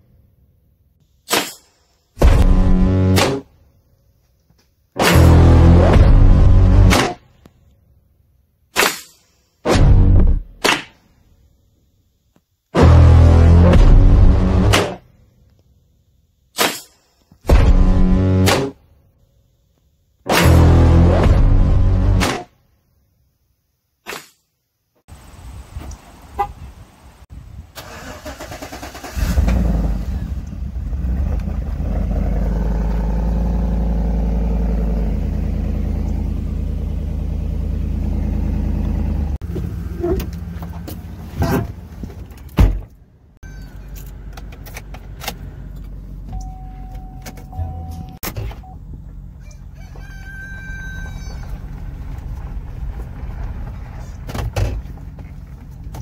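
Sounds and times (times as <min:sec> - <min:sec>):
car engine starting and running: 0:02.2 - 0:03.4, 0:05.0 - 0:07.2, 0:09.7 - 0:10.6, 0:12.8 - 0:15.6, 0:17.5 - 0:18.8, 0:20.3 - 0:22.3, 0:27.7 - 0:56.0.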